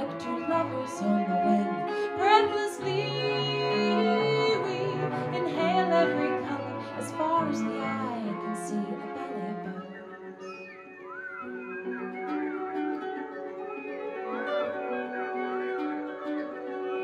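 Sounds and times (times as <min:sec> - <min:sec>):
woman singing: 0:00.0 - 0:10.4
baritone ukulele: 0:00.0 - 0:17.0
electric guitar: 0:00.0 - 0:17.0.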